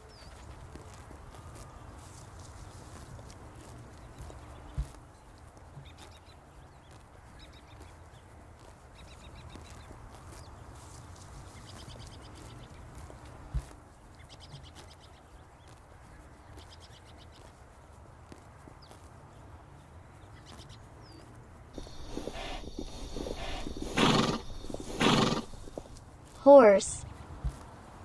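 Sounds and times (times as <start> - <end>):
small birds singing trills: 0.0 - 0.6, 3.5 - 8.3, 8.9 - 12.9, 13.9 - 17.6, 20.1 - 26.0
steady low rumble: 21.8 - 26.1.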